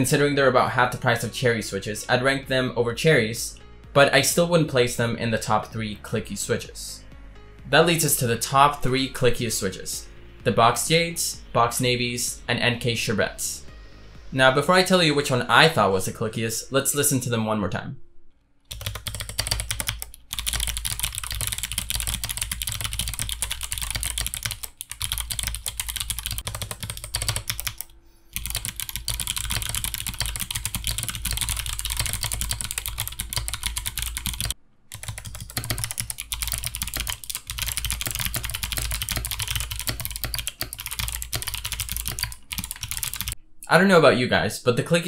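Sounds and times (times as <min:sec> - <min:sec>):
clicky mechanical keyboard typing: 0:18.7 - 0:43.4.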